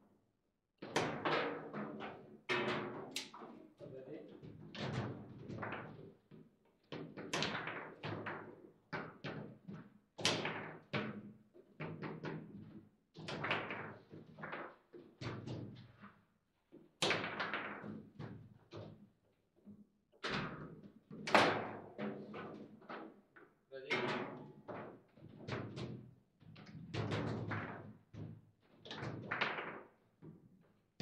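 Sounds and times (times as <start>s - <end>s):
foosball knocks and clacks: 7.0s - 15.8s, 17.0s - 19.0s, 24.0s - 30.4s.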